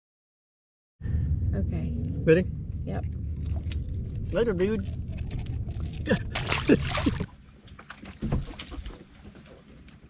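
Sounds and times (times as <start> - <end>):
water splashing at a boat: 3.3 - 10.0.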